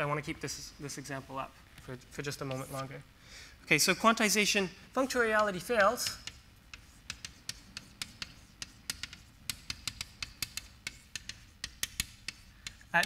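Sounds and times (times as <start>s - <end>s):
chalk clicking on blackboard: 5.1s - 13.0s.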